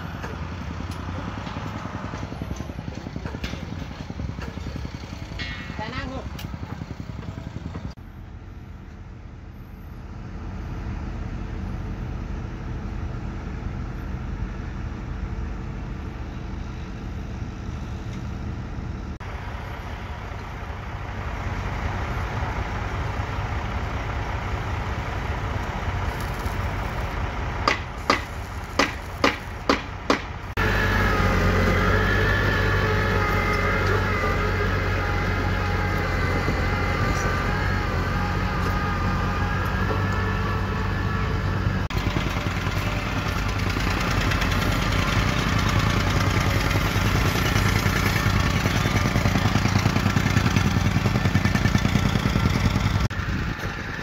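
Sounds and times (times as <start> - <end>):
dozer diesel engine driving: 0.0 - 54.0
excavator diesel engine: 0.0 - 54.0.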